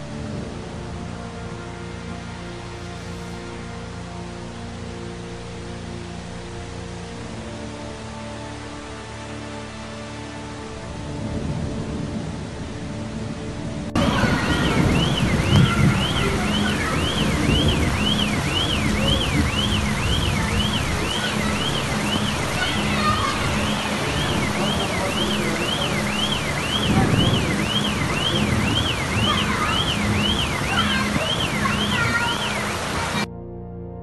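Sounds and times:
floodwater rushing: 0.0s - 33.3s
rain: 0.0s - 33.3s
car alarm: 14.0s - 33.3s.

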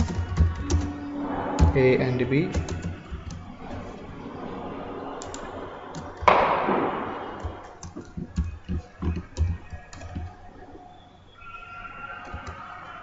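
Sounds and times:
keyboard typing clicks: 0.0s - 1.0s, 2.5s - 3.4s, 7.4s - 10.4s, 12.2s - 13.0s
loud bang: 1.0s - 8.4s.

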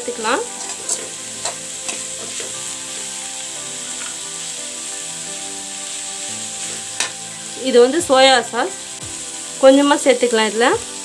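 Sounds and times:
vegetables sizzling in a pan: 0.0s - 11.0s
metal spatula scraping a pan: 0.4s - 3.2s, 6.4s - 7.2s.

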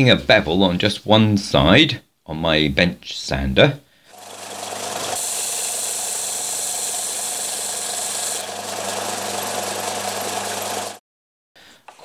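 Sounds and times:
belt sander motor hum: 4.1s - 11.0s.

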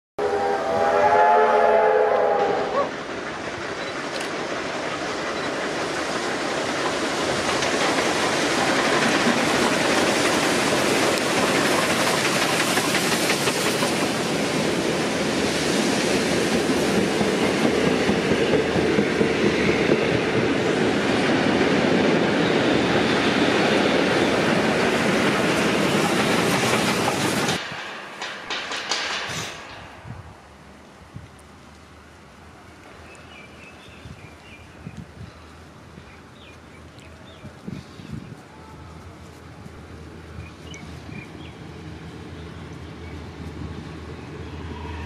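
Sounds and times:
train whistle: 0.2s - 3.0s, 44.5s - 45.0s
steam train running past: 0.2s - 45.0s.

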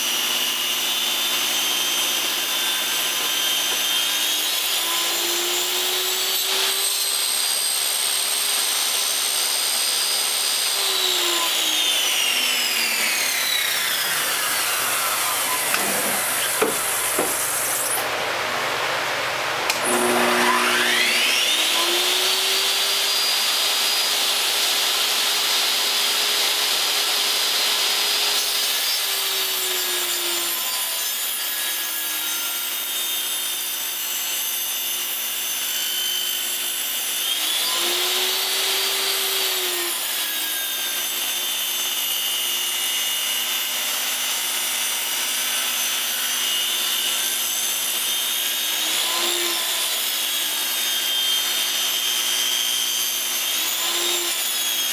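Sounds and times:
table saw ripping board: 0.0s - 18.1s.

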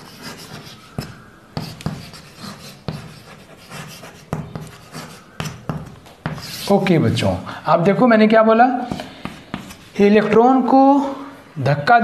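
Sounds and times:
chalk scratching on blackboard: 0.0s - 6.9s, 8.8s - 10.3s
chalk tapping on board: 0.2s - 6.7s, 8.9s - 10.0s.

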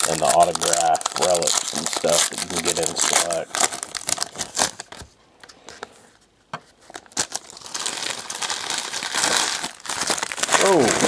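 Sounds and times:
foil wrappers crinkling and tearing: 0.0s - 5.0s, 6.9s - 11.0s.

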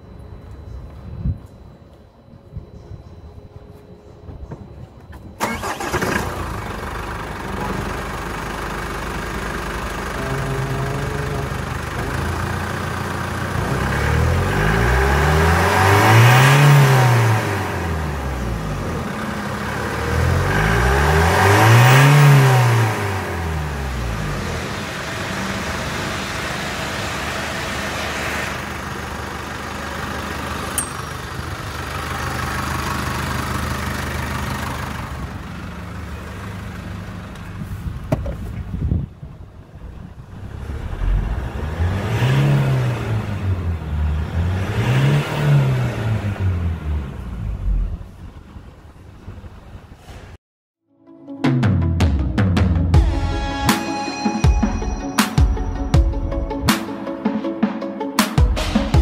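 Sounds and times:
diesel engine idling and revving: 4.3s - 50.4s.

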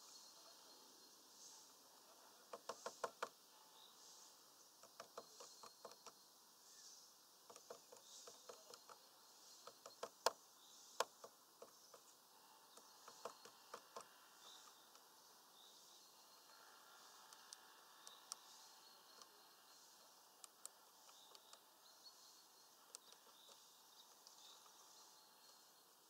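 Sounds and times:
bird pecking on wood: 2.4s - 3.4s, 4.8s - 6.2s, 7.4s - 10.4s, 11.0s - 12.1s, 12.7s - 15.1s, 22.8s - 24.8s.

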